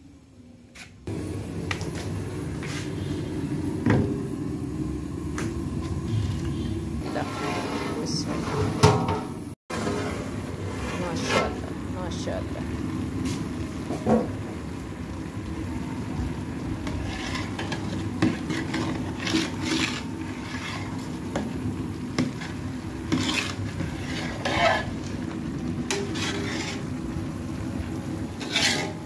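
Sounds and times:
metal ladle scraping a pot: 6.1 - 9.0, 9.7 - 11.6, 16.8 - 21.5, 22.1 - 27.1, 28.4 - 29.0.

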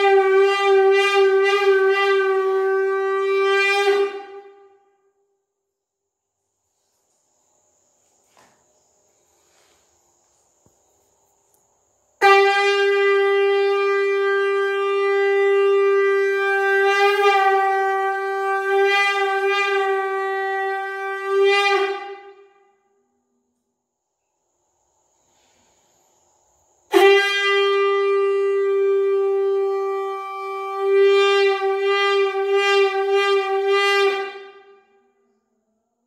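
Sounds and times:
conch shell blown: 0.0 - 5.4, 12.2 - 23.4, 26.9 - 35.6.

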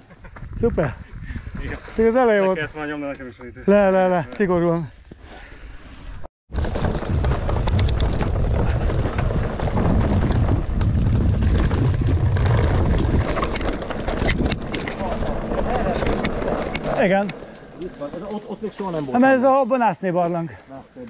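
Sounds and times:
wind rumbling on microphone: 0.0 - 3.7, 6.1 - 17.4
bike rattling on rough trail: 6.5 - 20.6.

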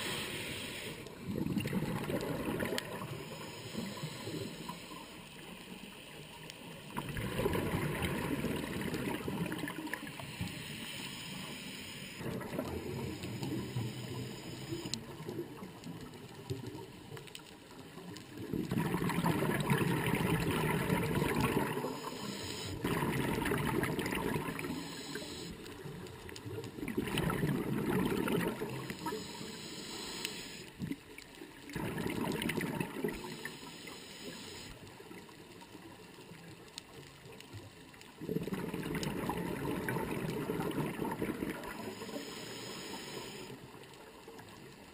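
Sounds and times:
regulator breathing bubbles: 18.5 - 25.6.

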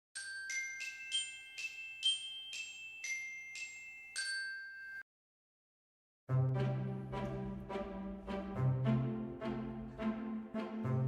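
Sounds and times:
bell-like mallet jingle: 0.2 - 5.1.

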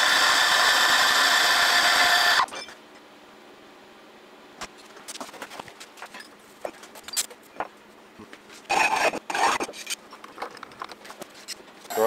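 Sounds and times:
metal scraping on metal: 8.7 - 10.0.

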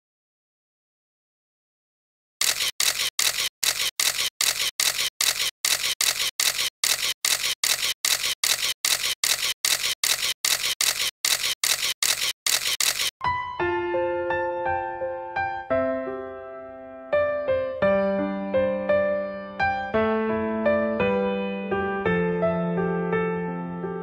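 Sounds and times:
camera shutter firing: 2.4 - 13.1.

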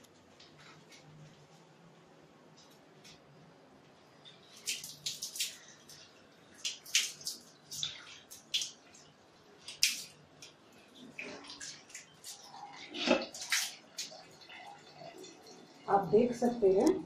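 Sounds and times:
water splashing onto tiles: 4.2 - 17.0.

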